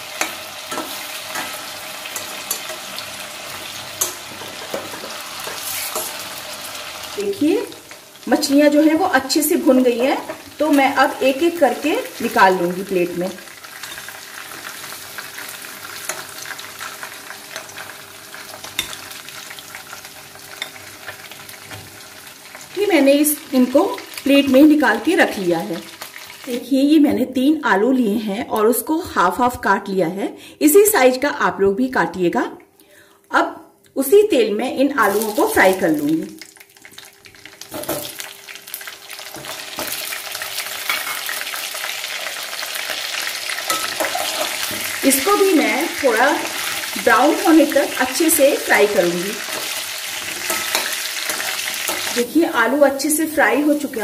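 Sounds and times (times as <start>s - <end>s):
fish sizzling in oil: 0.0s - 26.8s, 35.0s - 54.0s
metal spatula scraping: 0.1s - 3.0s, 4.0s - 6.2s, 43.7s - 45.0s, 49.4s - 52.2s.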